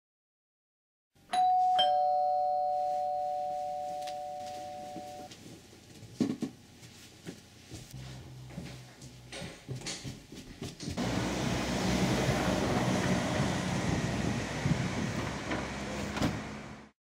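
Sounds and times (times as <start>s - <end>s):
two-note doorbell chime: 1.3s - 5.3s.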